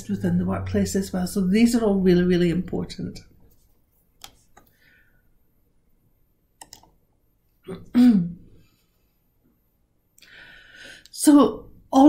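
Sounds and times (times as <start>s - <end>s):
soft breath: 4.6s - 5.4s, 10.2s - 11.1s.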